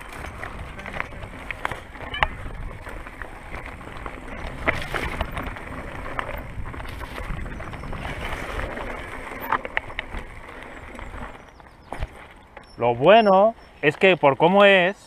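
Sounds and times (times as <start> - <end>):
clicks and knocks from stones: 0.0 - 12.8
mountain bike rumbling on rocky trail: 0.0 - 14.8.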